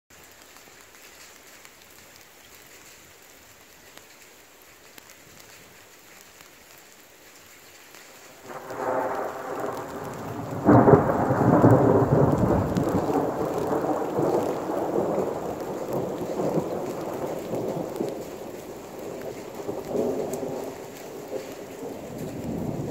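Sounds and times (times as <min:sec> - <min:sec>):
steady rain: 0:00.1 - 0:22.9
thunder rumbling and cracking: 0:08.4 - 0:22.9.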